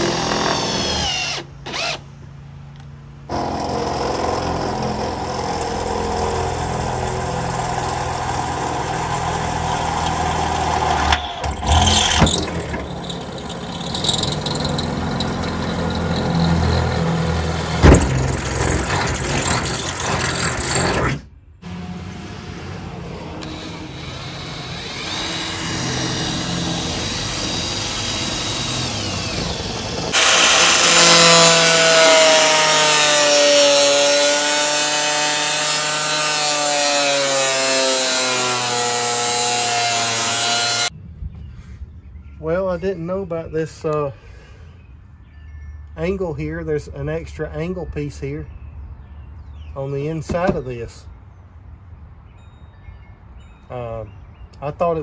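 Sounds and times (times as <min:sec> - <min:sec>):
angle grinder cutting metal: 0:03.3 - 0:40.9
sharp knocks: 0:17.8 - 0:19.6.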